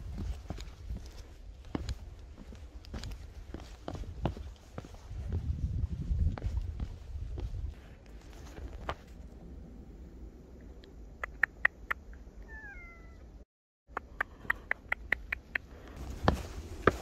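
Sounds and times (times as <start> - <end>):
cat meowing: 12.4 - 13.3.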